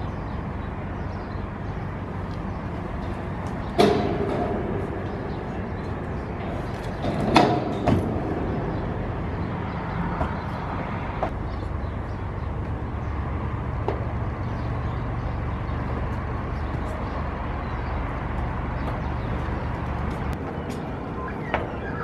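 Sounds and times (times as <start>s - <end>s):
steady low rumble: 0.0s - 21.8s
sharp knocks on steel: 3.8s - 4.8s.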